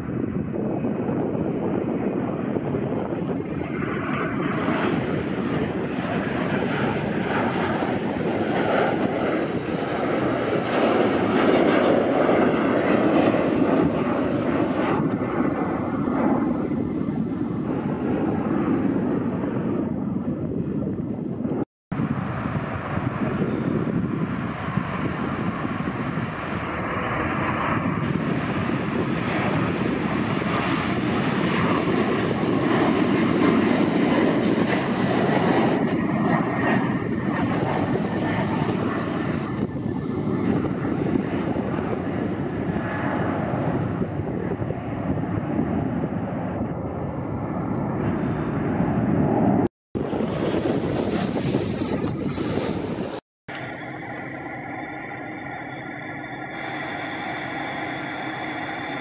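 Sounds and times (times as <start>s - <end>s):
jet engines climbing out: 0.0s - 59.0s.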